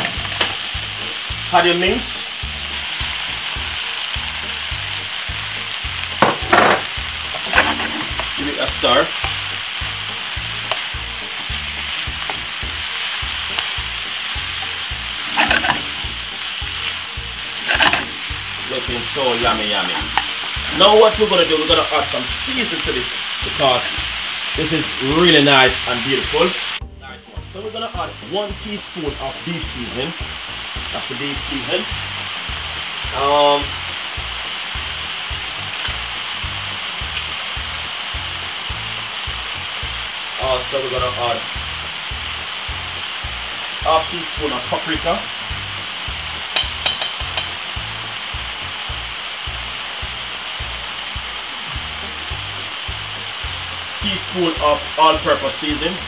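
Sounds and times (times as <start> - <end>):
background music with low beat: 0.0 - 56.0
meat and vegetables sizzling in pan: 0.0 - 56.0
wooden spoon stirring: 7.3 - 8.4, 13.0 - 18.3.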